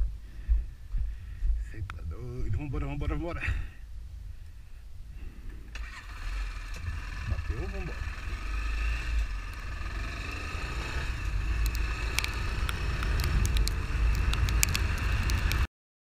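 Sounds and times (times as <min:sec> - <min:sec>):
heavy low rumble: 0:00.0 - 0:15.7
motorcycle engine running: 0:05.9 - 0:15.7
sharp ticks: 0:06.7 - 0:15.7.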